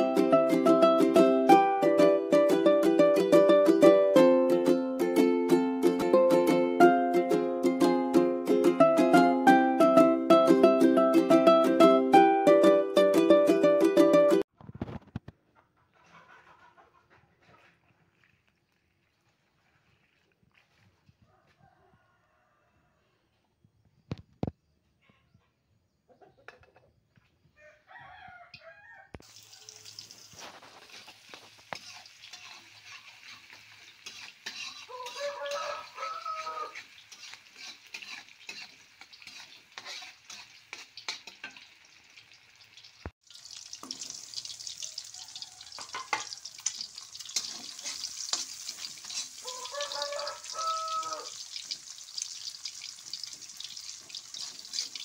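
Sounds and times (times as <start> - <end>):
rooster crowing: 21.2 - 23.2, 27.6 - 29.9, 34.9 - 36.9, 44.7 - 46.7, 49.2 - 51.4
food sizzling in hot oil: 29.2 - 55.0
metal spatula scraping a pan: 29.9 - 41.8, 45.7 - 50.9, 53.2 - 55.0.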